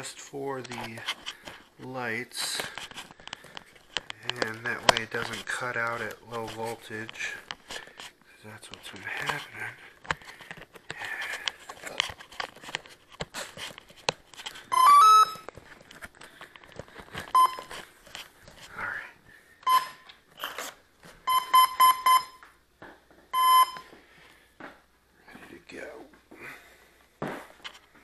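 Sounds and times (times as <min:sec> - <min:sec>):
handling clicks and rustles: 0:00.2 - 0:14.8
motor controller beeps: 0:14.7 - 0:15.4, 0:23.4 - 0:23.8.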